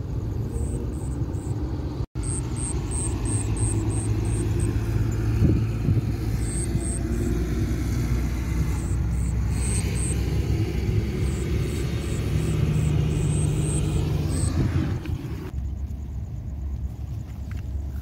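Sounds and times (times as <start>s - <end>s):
insects chirping: 0.0s - 18.0s.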